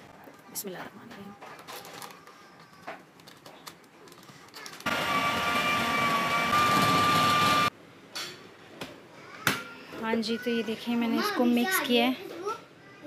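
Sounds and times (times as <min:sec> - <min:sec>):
food processor motor whine: 0:04.8 - 0:07.7.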